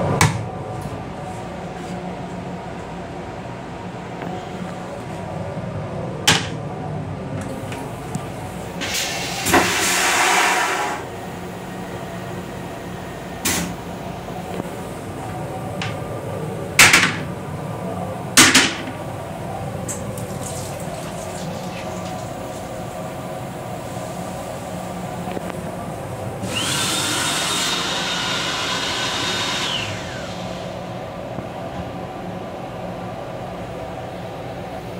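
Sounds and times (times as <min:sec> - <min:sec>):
hissing rush with high whine: 0:07.5 - 0:31.4.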